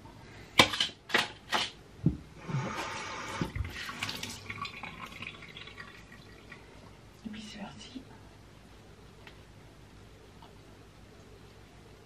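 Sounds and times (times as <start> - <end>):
water running from a tap: 3.5 - 6.7.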